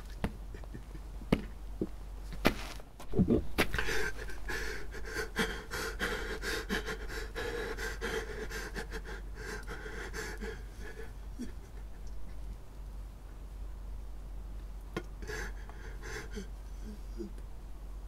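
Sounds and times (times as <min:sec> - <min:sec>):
man breathing heavily: 0:03.7 - 0:11.6, 0:15.1 - 0:17.4.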